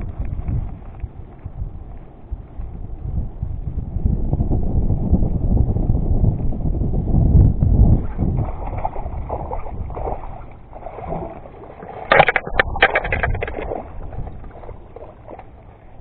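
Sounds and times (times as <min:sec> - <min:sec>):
wind on microphone: 0:00.0 - 0:16.0
sharp splashes and knocks: 0:08.1 - 0:15.6
water sloshing: 0:08.2 - 0:16.0.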